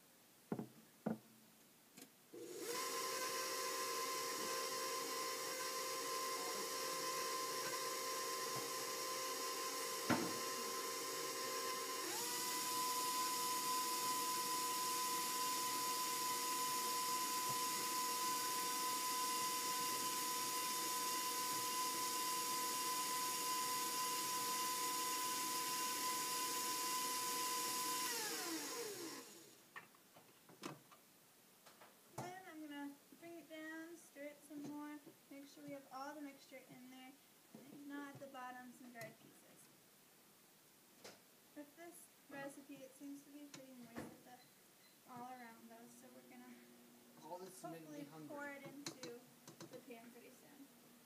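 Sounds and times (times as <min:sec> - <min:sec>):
electric mixer motor whine: 0:02.4 - 0:29.6.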